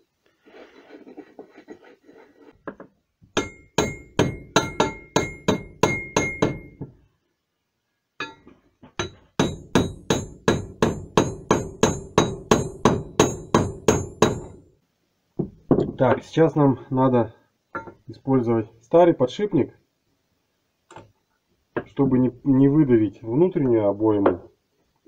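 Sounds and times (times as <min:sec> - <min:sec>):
hammer tapping: 0:02.7 - 0:07.0, 0:08.2 - 0:14.6
faint metallic ring: 0:17.7 - 0:18.0.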